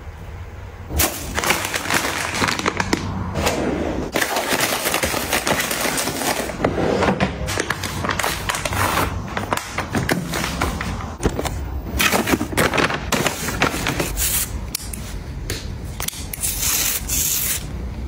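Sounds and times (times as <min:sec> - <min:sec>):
plastic packaging crinkling: 0:01.2 - 0:03.2, 0:04.1 - 0:06.6.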